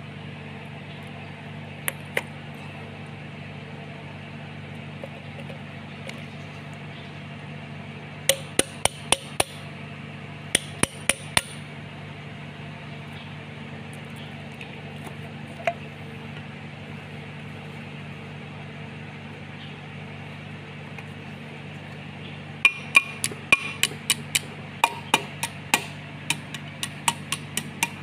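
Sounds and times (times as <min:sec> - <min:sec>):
steady low hum: 0:00.0 - 0:28.0
hammer tapping on metal: 0:08.3 - 0:09.6, 0:10.6 - 0:11.6, 0:22.6 - 0:28.0.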